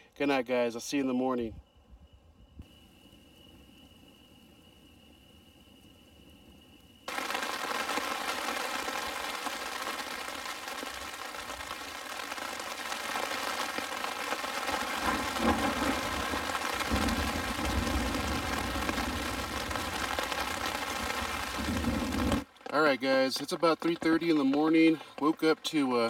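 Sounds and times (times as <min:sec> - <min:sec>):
rain on a tent: 0:07.0 - 0:23.6
low thunder rumbles: 0:13.5 - 0:22.5.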